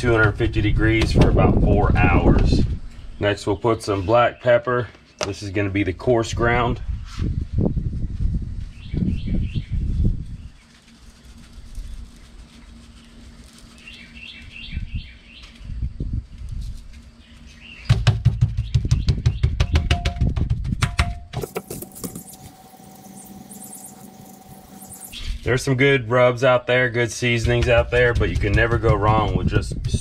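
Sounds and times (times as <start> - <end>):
small birds chirping: 6.9 - 15.9, 17.0 - 19.9, 21.4 - 25.5.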